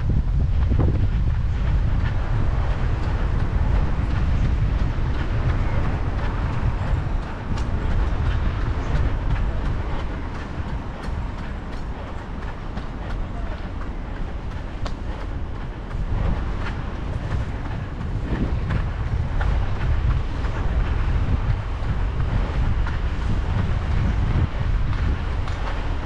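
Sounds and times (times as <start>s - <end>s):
road traffic: 0.0s - 26.0s
wind on microphone: 0.0s - 26.0s.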